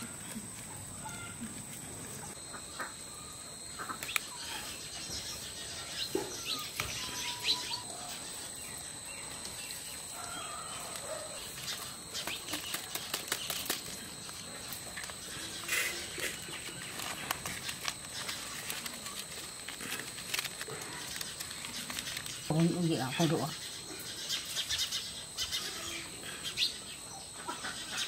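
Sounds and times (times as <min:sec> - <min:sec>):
birds chirping: 0:02.2 - 0:19.8
leaves crackling being folded: 0:09.4 - 0:23.5.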